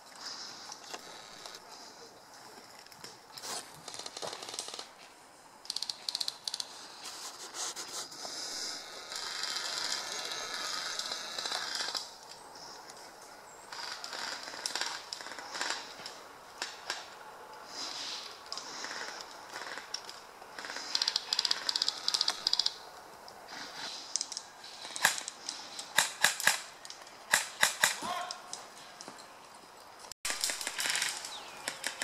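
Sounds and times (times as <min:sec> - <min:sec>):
dry leaves and twigs crackling: 0:00.0 - 0:05.2, 0:05.9 - 0:32.0
steady hiss: 0:03.1 - 0:27.9
sharp clicks and rattles: 0:05.6 - 0:06.7, 0:18.5 - 0:22.8.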